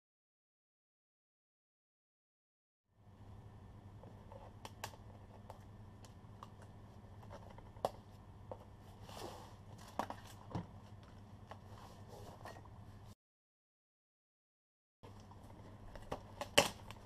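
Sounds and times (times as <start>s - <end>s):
steady low hum: 2.9s - 13.2s.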